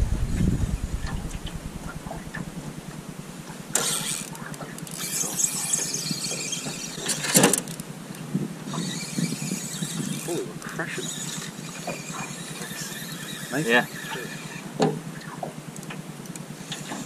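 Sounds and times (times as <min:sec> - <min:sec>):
fishing reel whirring and squealing: 0:03.7 - 0:15.4, 0:16.2 - 0:17.0.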